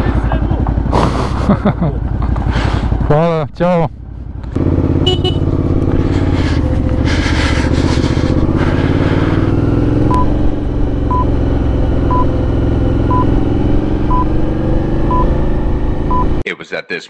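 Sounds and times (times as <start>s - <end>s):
motorcycle engine running: 0.0s - 16.4s
short electronic beeps: 10.1s - 10.4s, 11.1s - 11.3s, 12.0s - 12.4s, 13.0s - 13.4s, 14.1s - 14.3s, 15.0s - 15.4s, 16.1s - 16.4s.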